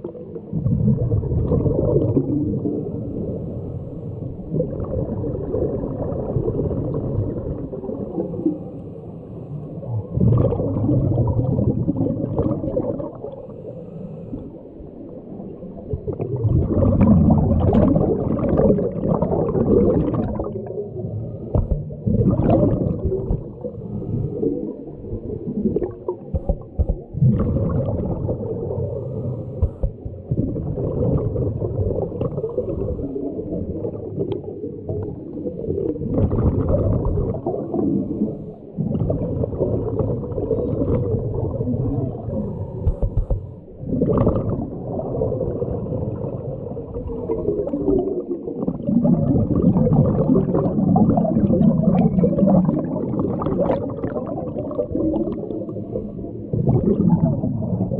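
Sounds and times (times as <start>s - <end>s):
exhaled bubbles streaming: 0.0s - 57.9s
underwater regulator breathing: 13.3s - 14.8s, 28.8s - 30.1s, 42.1s - 43.7s.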